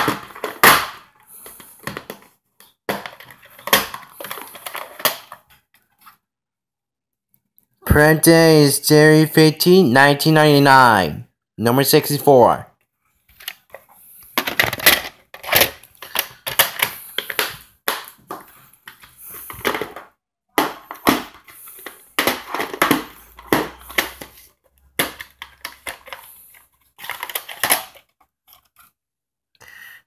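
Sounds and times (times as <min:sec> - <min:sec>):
plastic cases clicking and snapping: 0:00.0 - 0:05.6, 0:13.3 - 0:28.7.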